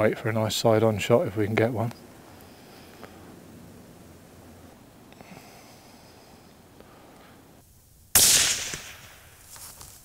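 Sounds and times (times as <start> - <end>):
suppressed rifle shot: 8.1 - 9.4.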